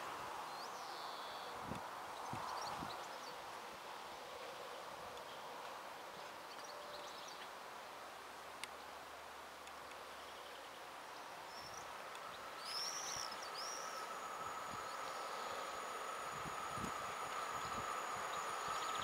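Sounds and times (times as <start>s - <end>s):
electric locomotive approaching: 11.8s - 19.0s
high whine: 11.8s - 19.0s.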